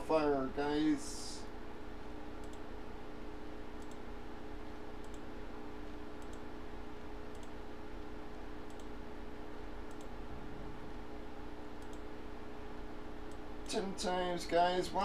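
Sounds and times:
low electrical hum: 0.0s - 15.0s
computer mouse clicking: 2.4s - 2.7s, 3.8s - 4.0s, 5.0s - 5.3s, 6.2s - 6.5s, 7.3s - 7.6s, 8.6s - 8.9s, 9.9s - 10.1s, 11.8s - 12.1s.

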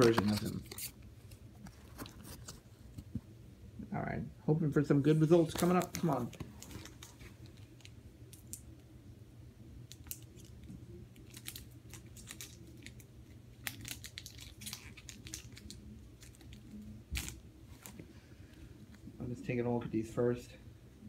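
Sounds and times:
wrapper crinkling: 5.2s - 8.6s, 9.9s - 18.0s.

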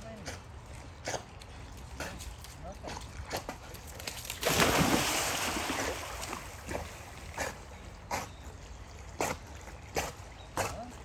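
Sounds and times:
dogs splashing in water: 3.2s - 7.7s.

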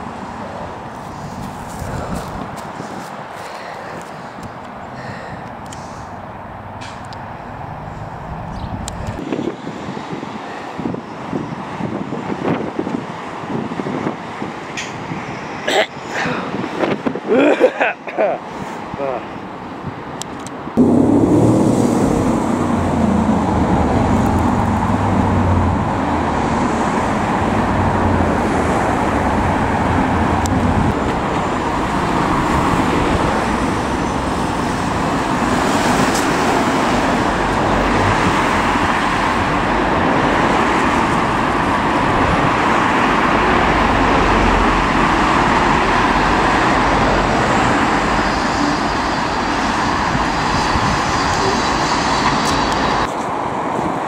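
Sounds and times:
cars driving past: 0.0s - 11.0s, 20.7s - 54.0s
deep engine rumble: 5.8s - 9.2s, 20.8s - 26.4s.

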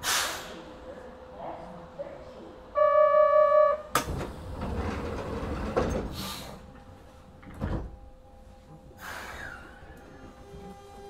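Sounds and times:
sliding train doors closing: 3.6s - 8.2s.

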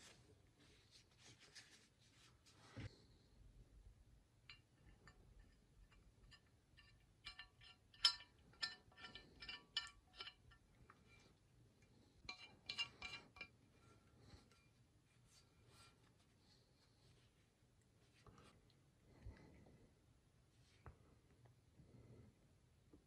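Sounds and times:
metal pins clinking: 4.5s - 10.7s, 12.2s - 13.6s.

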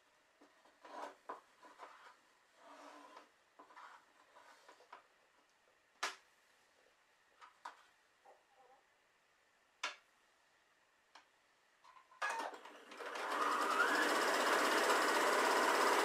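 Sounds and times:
sewing machine stitching: 12.3s - 16.0s.

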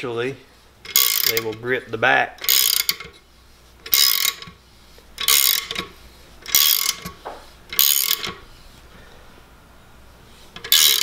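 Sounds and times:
ratchet wrench clicking: 0.8s - 1.6s, 2.4s - 3.2s, 3.8s - 4.6s, 5.2s - 8.4s, 10.6s - 11.0s.

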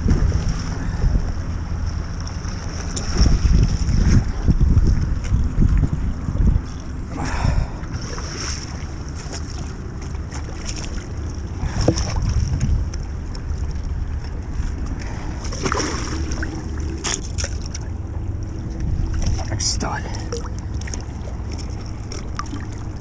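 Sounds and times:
wind buffeting microphone: 0.0s - 23.0s
fish splashing in water: 15.0s - 18.1s.

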